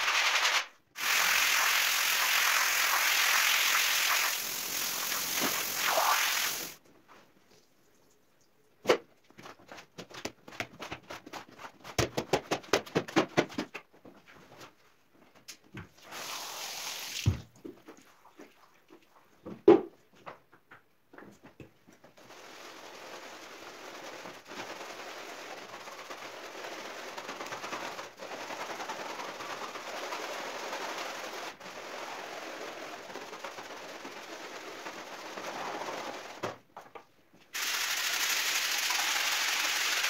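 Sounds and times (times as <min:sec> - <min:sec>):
scrub brush scrubbing a rug: 0:01.0 - 0:06.8, 0:22.2 - 0:35.5.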